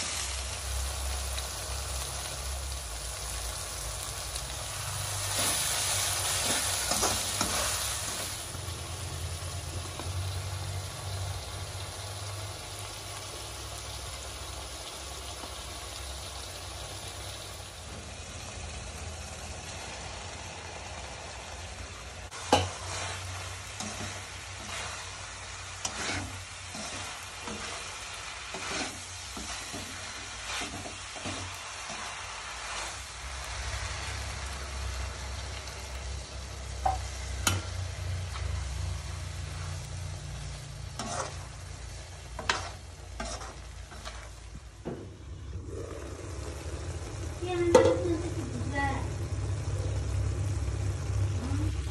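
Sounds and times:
prawns frying with a sizzle: 0.0s - 51.9s
metal spatula scraping a pan: 5.2s - 8.2s, 22.4s - 33.0s, 40.8s - 44.4s.

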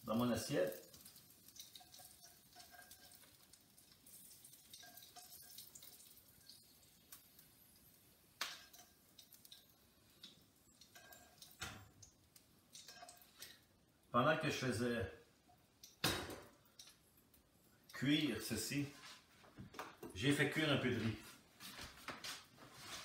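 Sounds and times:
utensil clicking on frying pan: 0.8s - 6.2s.

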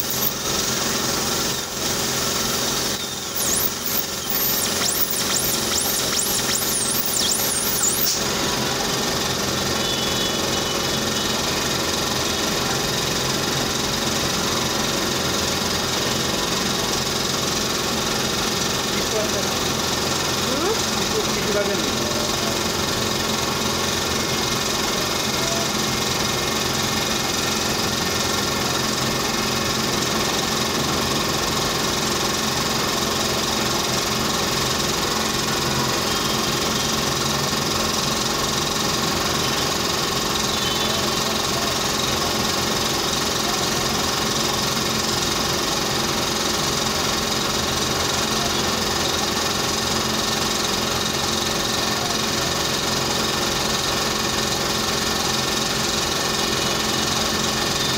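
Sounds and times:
motor humming: 0.0s - 9.7s.

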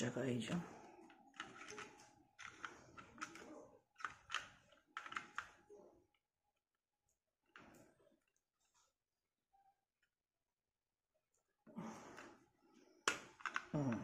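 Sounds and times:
plastic toy parts clicking: 1.2s - 5.6s, 13.0s - 14.0s.

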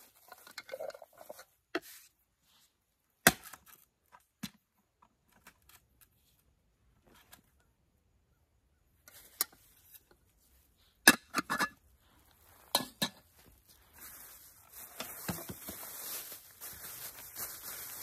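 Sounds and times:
plastic bag rustling: 13.4s - 18.0s.

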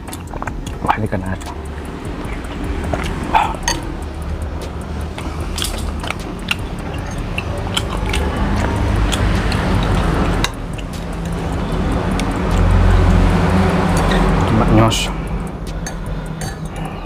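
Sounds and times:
steady low rumble: 0.0s - 17.0s
cutlery clinking on ceramic bowl: 3.4s - 3.9s, 15.8s - 16.9s.

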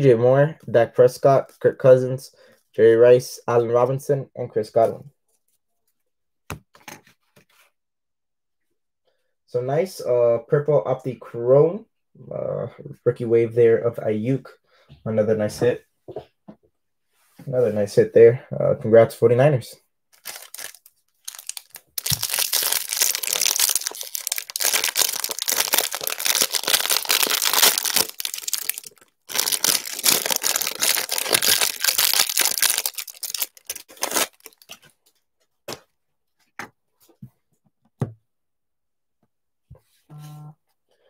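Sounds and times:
plastic wrapper tearing and crinkling: 20.1s - 34.9s.

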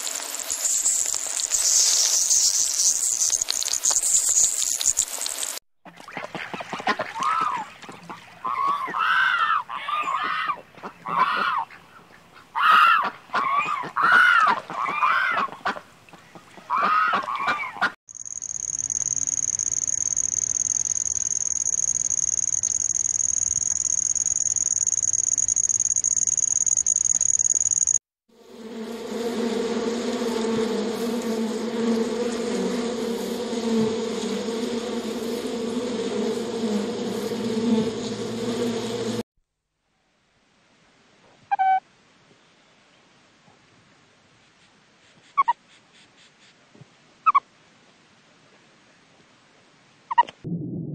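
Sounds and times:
waterfowl honking: 16.7s - 17.9s
honeybee colony humming: 18.2s - 26.9s, 28.4s - 39.2s
steady high-pitched tone: 18.2s - 28.0s.

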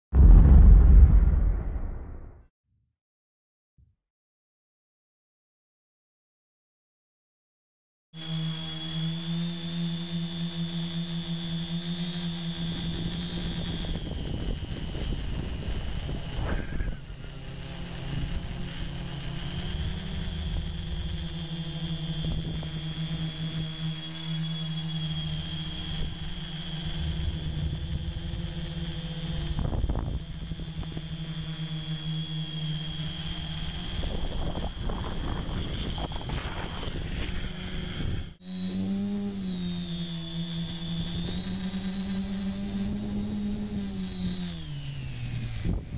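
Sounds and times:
drone motors buzzing and whining: 8.2s - 45.9s
wind on microphone: 13.4s - 17.2s, 29.4s - 30.6s, 33.9s - 38.4s, 45.6s - 45.9s.

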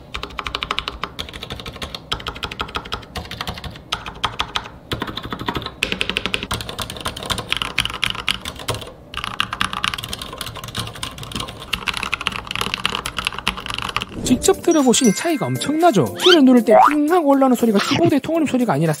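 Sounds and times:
fast typing on mechanical keyboard: 0.0s - 14.1s.

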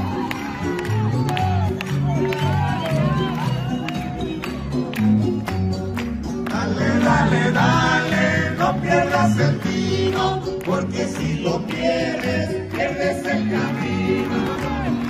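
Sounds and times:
hands clapping: 0.0s - 15.0s
group singing: 6.5s - 15.0s.

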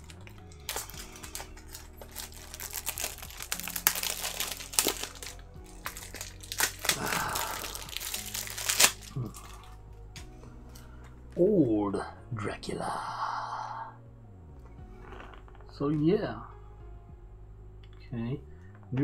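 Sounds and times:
packaging crinkling: 0.0s - 9.8s.

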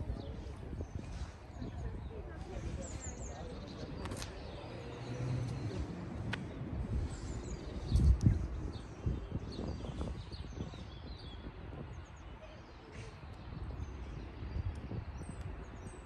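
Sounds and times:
steady low rumble: 0.0s - 10.9s
small birds chirping: 0.0s - 16.0s.

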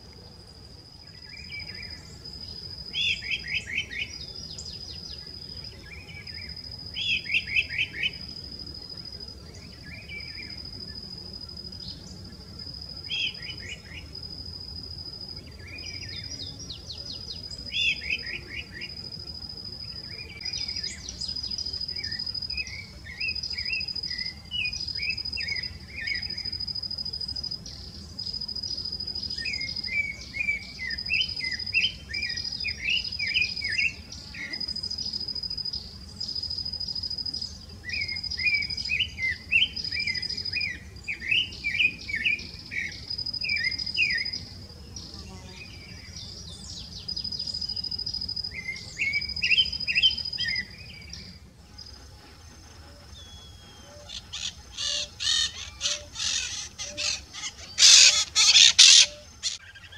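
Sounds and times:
insect high trill: 0.0s - 59.9s.

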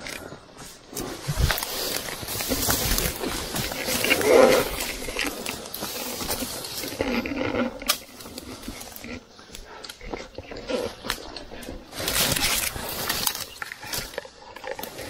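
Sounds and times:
person breathing heavily and grunting: 0.0s - 13.2s
footsteps: 0.0s - 14.2s
brush rustling: 0.0s - 15.0s
twigs snapping: 10.9s - 15.0s.

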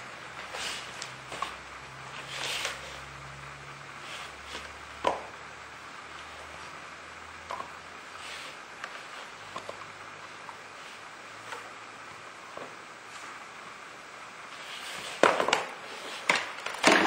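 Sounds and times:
toy blocks rustling: 0.3s - 3.0s.

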